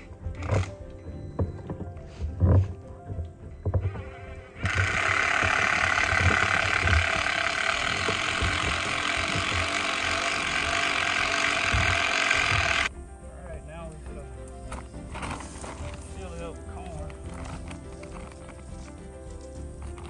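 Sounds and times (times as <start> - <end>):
cordless drill driving screw: 4.6 - 12.9.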